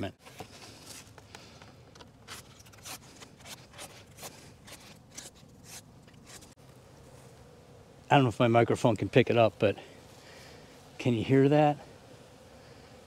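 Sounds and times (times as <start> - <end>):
marker scratching strokes: 2.3 - 6.6.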